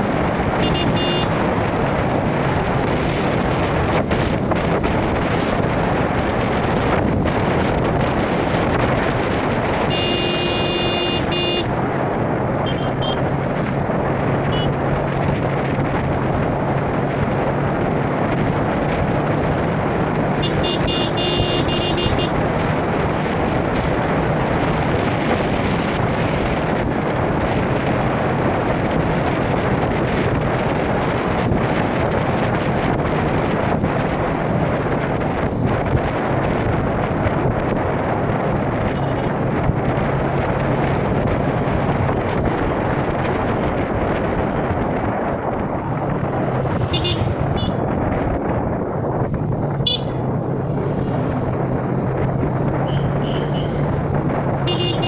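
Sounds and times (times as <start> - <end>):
vehicle road noise: 0.0 - 55.0
wind rush on microphone: 0.0 - 55.0
high-pitched horn blasts: 0.6 - 1.3, 9.9 - 11.7, 20.4 - 22.3.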